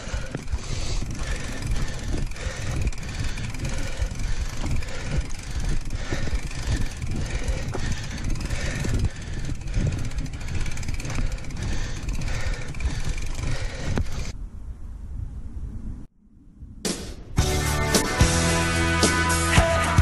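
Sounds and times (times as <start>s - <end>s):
bike knocks and rattles: 0.0s - 14.3s
bike tyres rumbling on dirt: 0.0s - 14.4s
wind on microphone: 0.0s - 16.9s.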